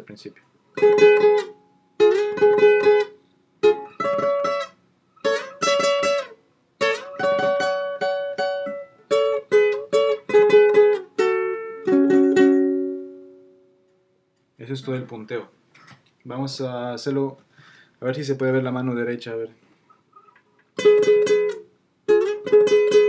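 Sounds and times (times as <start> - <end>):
classical guitar melody: 0.7 - 14.1, 20.1 - 23.0.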